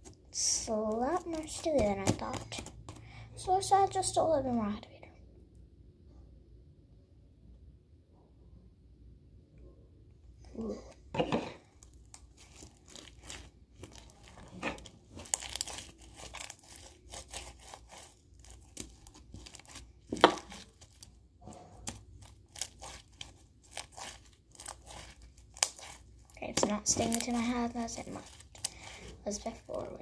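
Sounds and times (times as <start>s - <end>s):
sticky slime crackling and tearing: 0.4s - 2.9s, 11.7s - 30.0s.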